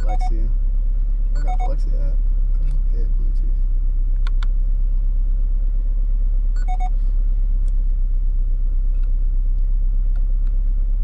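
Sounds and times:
short electronic beep: 0:00.0 - 0:00.4, 0:01.4 - 0:01.8, 0:06.6 - 0:07.0
car engine idling: 0:00.0 - 0:11.0.

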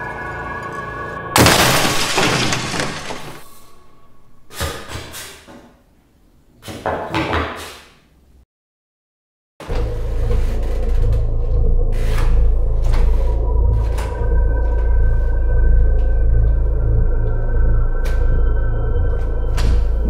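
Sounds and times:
low rumbling drone: 0:09.7 - 0:20.0.

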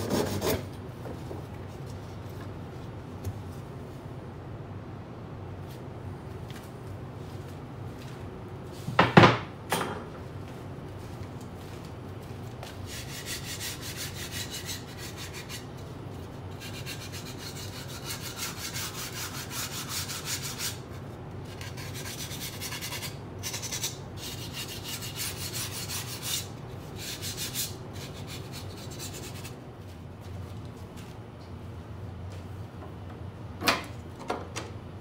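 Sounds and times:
hand sanding scratchy strokes: 0:12.9 - 0:15.7, 0:16.5 - 0:20.8, 0:21.5 - 0:29.6.

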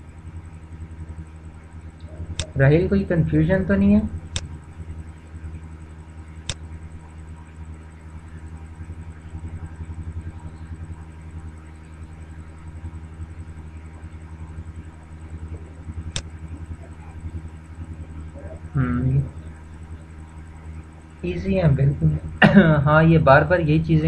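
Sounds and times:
steady low hum: 0:00.0 - 0:24.0
sharp clicks: 0:04.3 - 0:04.6, 0:06.4 - 0:06.6.

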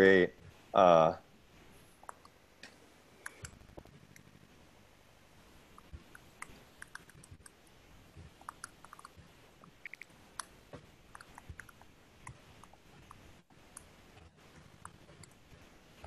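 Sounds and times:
keyboard typing: 0:05.8 - 0:07.6, 0:08.2 - 0:15.5.

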